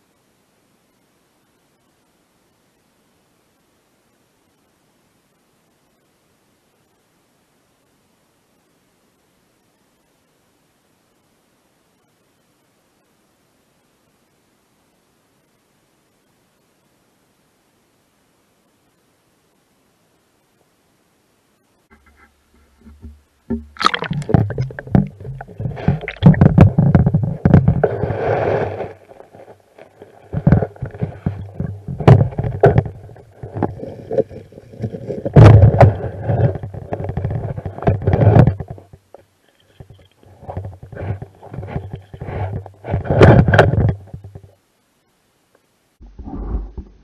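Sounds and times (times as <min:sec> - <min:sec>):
underwater stream knocks and gurgling: 0:22.1 - 0:39.2, 0:39.8 - 0:44.5.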